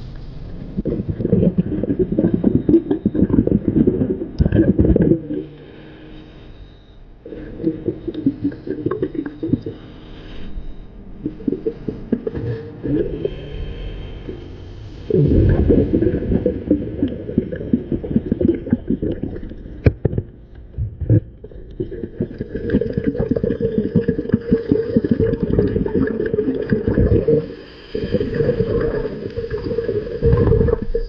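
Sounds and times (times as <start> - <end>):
air bubbling underwater: 0.7 - 5.6, 7.3 - 9.8, 11.2 - 13.4, 14.3 - 20.2, 20.9 - 31.0.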